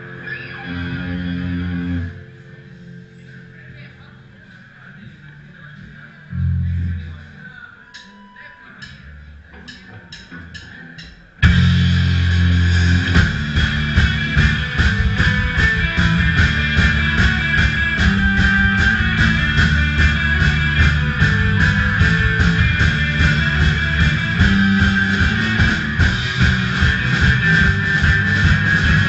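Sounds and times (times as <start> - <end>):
electric guitars: 0.0 - 7.2, 9.4 - 29.0
bass guitar: 0.0 - 7.6, 8.8 - 29.0
drums driving beat: 8.8 - 29.0.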